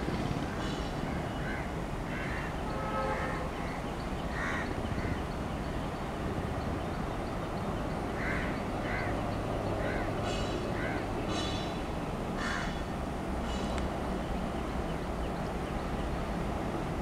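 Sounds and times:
distant diesel locomotive rumble: 0.0 - 17.0
crows cawing: 1.4 - 2.5, 3.6 - 5.2, 8.2 - 9.2, 9.8 - 11.6, 12.4 - 12.9.

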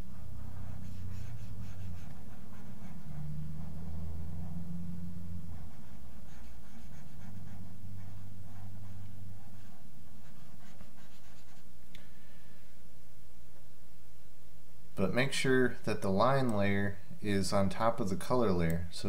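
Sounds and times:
computer mouse rubbing on desk: 0.1 - 4.6, 5.4 - 11.7.

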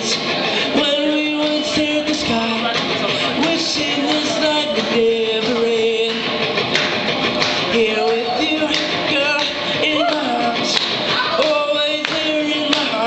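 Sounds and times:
acoustic guitar strumming: 0.0 - 13.0
person singing long notes: 7.7 - 13.0.

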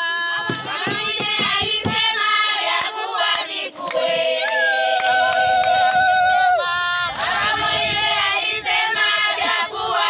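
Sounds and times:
women singing together: 0.0 - 10.0
hand-clapping: 0.5 - 2.1, 2.7 - 6.3.

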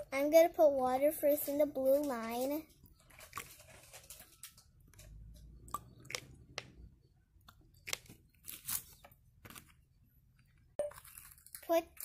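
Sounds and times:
plastic crinkles and clicks: 3.0 - 5.2.

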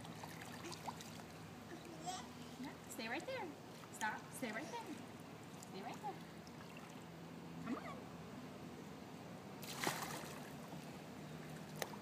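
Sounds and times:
pool water splashing: 0.0 - 2.2, 3.0 - 8.2, 9.5 - 12.0.

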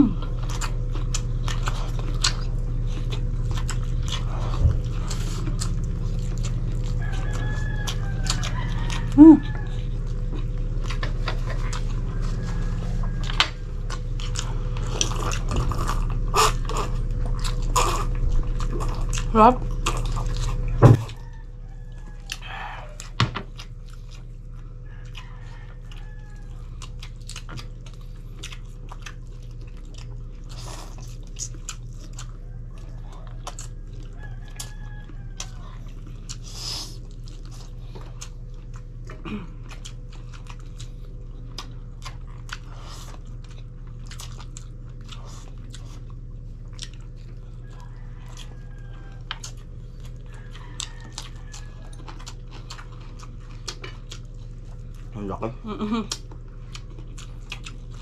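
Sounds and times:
chewing and biting meat: 0.0 - 58.0
steady low hum: 0.0 - 58.0.

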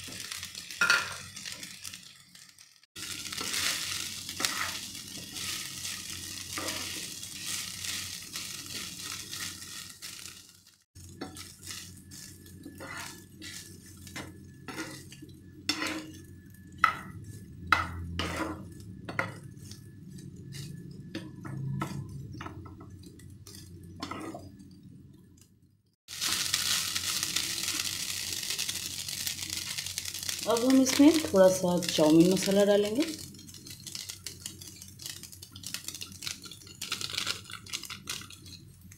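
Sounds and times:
frying sizzle: 0.0 - 38.9
wooden spatula scraping a pan: 4.4 - 10.2, 11.2 - 16.2, 18.2 - 22.1, 23.4 - 24.5.

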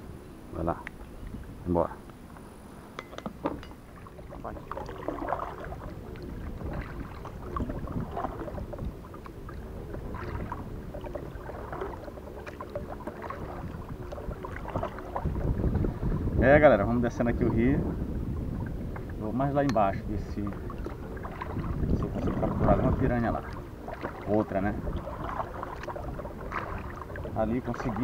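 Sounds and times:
paddle strokes in water: 3.0 - 28.0
water splashes and drips: 3.4 - 16.2, 18.6 - 28.0.

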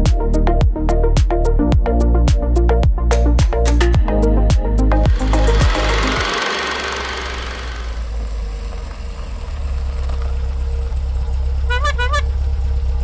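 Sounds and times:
vehicle engine running: 3.4 - 13.0.

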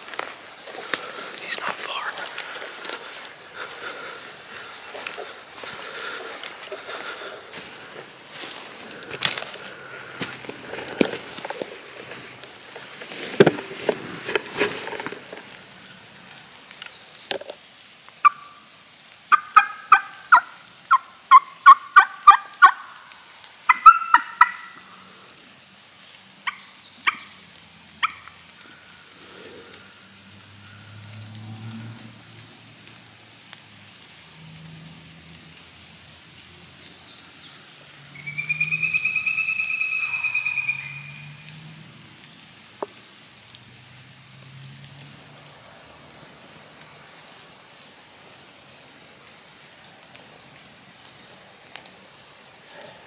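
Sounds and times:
turkey gobbling: 18.2 - 18.6, 19.3 - 23.0, 23.7 - 24.9, 26.4 - 27.4, 28.0 - 28.4, 38.2 - 41.2
turkey yelps: 18.2 - 18.6, 19.3 - 23.0, 23.7 - 24.8, 26.4 - 27.3, 28.0 - 28.3, 38.2 - 41.2.

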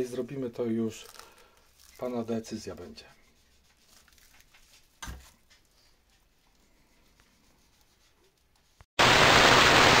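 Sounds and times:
loud static-like hiss: 9.0 - 10.0.

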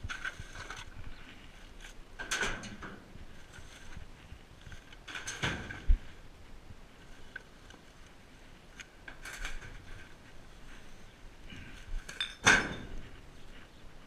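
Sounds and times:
hard objects clinking and clattering: 12.1 - 13.0.

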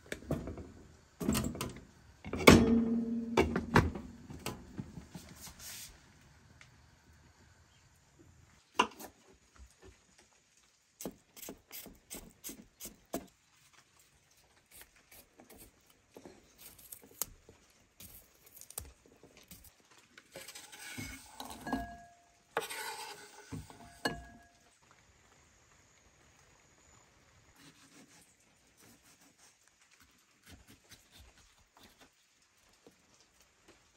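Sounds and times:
food sliding into ceramic bowl: 20.3 - 24.3.

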